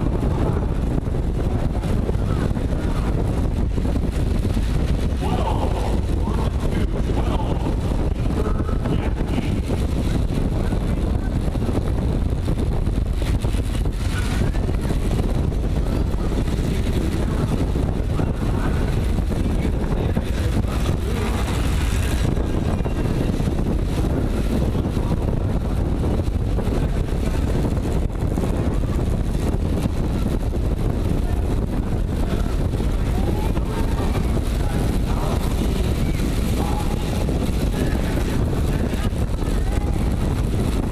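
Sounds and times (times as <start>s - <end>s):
wind rushing over microphone: 0.0s - 40.9s.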